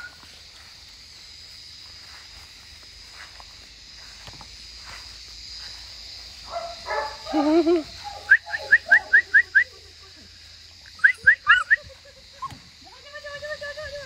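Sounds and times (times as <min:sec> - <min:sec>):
puppies whining: 0:11.0 - 0:11.8
puppies yipping: 0:11.0 - 0:12.6.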